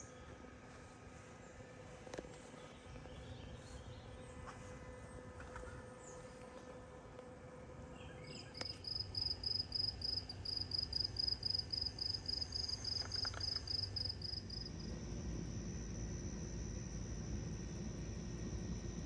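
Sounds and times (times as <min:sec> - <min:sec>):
cricket chirping: 0:08.4 - 0:19.0
high trill of insects: 0:08.6 - 0:19.0.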